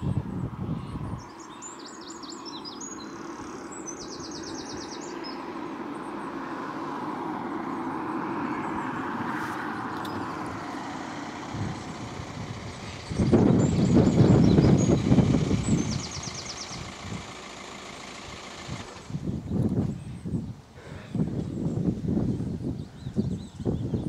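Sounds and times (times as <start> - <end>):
small birds chirping: 0.0 - 24.0
steady rushing noise: 7.9 - 20.0.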